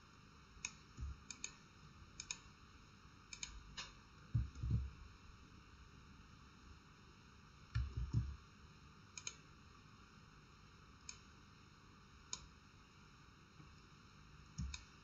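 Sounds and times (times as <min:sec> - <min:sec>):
computer mouse clicks: 0:00.6 - 0:01.6, 0:02.2 - 0:02.5, 0:03.3 - 0:04.9, 0:07.7 - 0:08.4, 0:09.1 - 0:09.4, 0:11.0 - 0:11.3, 0:14.6 - 0:15.0
dull low thumps: 0:04.4 - 0:05.0.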